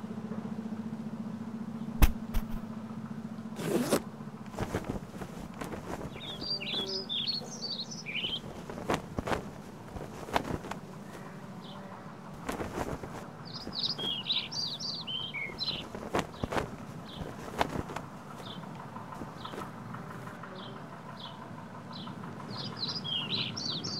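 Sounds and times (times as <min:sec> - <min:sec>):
low steady hum: 0:00.0 - 0:23.9
tent frame clicks and knocks: 0:02.0 - 0:02.7, 0:03.6 - 0:07.0, 0:08.1 - 0:11.2, 0:12.4 - 0:14.5, 0:15.5 - 0:18.6
songbird chirping: 0:04.6 - 0:23.9.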